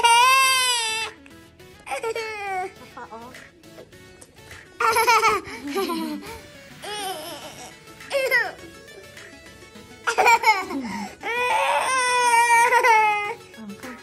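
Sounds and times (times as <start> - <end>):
toddler wailing: 0.0 - 1.2, 6.8 - 8.7, 11.2 - 13.4
toddler laughing and squealing: 10.1 - 13.4.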